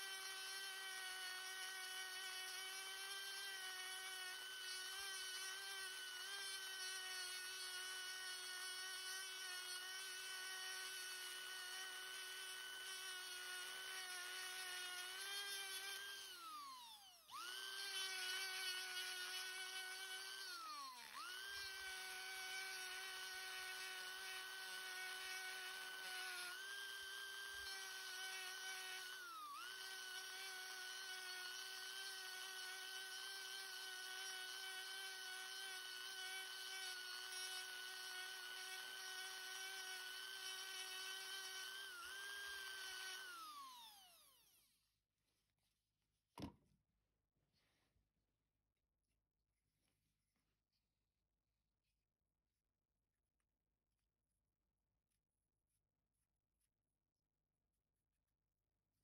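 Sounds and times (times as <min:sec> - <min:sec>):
burr carving wood: 0:00.0 - 0:44.7
rotary tool whining: 0:00.0 - 0:44.8.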